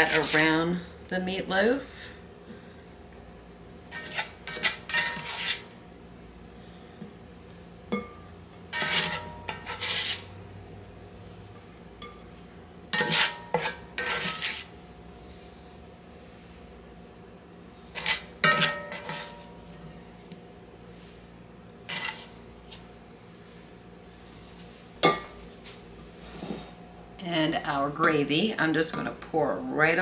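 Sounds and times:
spatula scraping a skillet: 0.0 - 0.6, 3.9 - 5.8, 8.7 - 10.4, 12.9 - 14.8, 17.9 - 19.8, 21.9 - 22.9.

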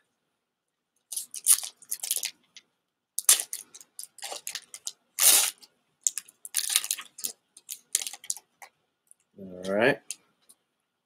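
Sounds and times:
foil wrapper crinkling and tearing: 1.1 - 2.4, 3.2 - 8.5.

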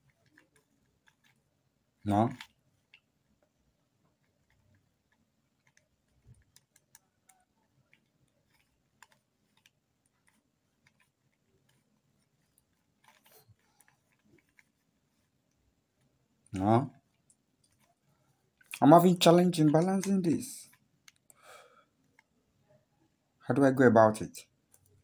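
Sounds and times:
puzzle cube clicking: 2.3 - 3.1, 4.2 - 14.8.

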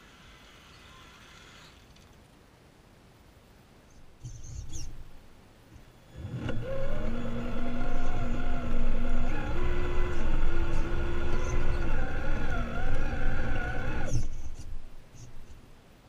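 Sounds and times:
electric motor and gears whining: 6.1 - 15.6.

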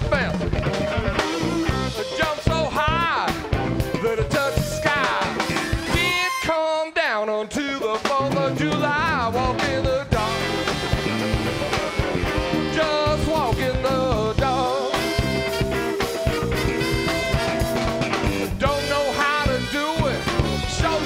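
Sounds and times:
electric guitar lead: 0.0 - 6.2, 8.2 - 21.0
live blues band playing: 0.0 - 6.7, 7.6 - 21.0.

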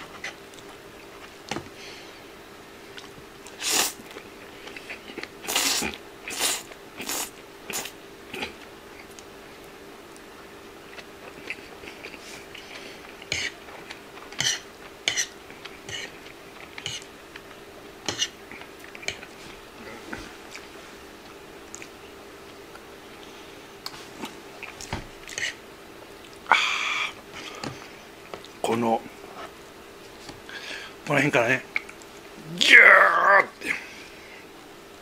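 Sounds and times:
person slurping and chewing: 4.6 - 8.6.

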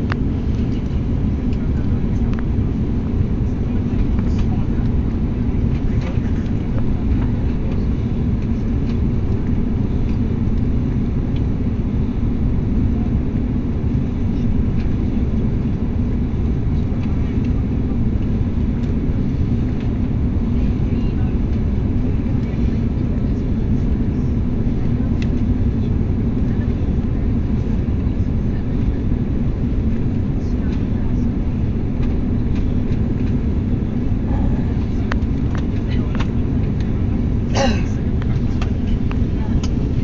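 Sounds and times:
airliner cabin engine rumble: 0.0 - 40.0.

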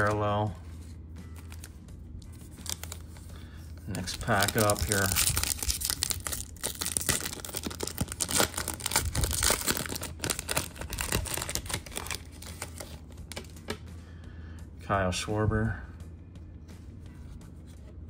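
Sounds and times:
foil wrapper crinkling: 3.9 - 13.6.

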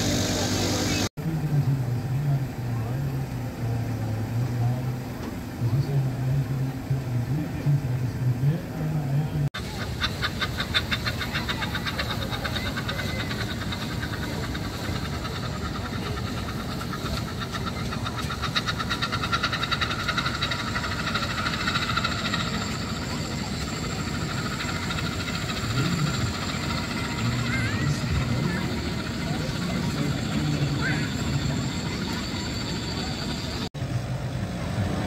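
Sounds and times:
steam engine exhaust beating: 0.0 - 35.0.

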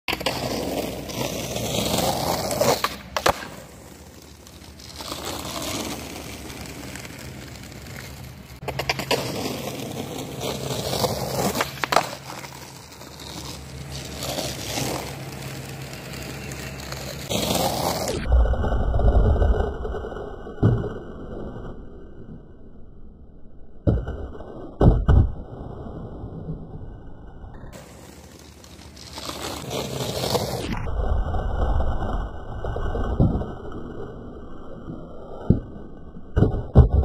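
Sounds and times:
skateboard clacking on ground: 0.1 - 18.2, 35.4 - 37.0
skateboard wheels rolling on asphalt: 0.1 - 37.0.

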